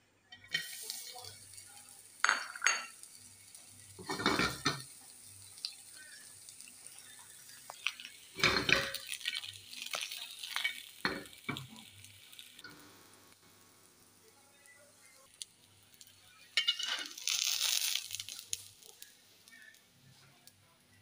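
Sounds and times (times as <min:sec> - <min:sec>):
utensil scraping frying pan: 0:02.5 - 0:11.9, 0:16.5 - 0:18.7.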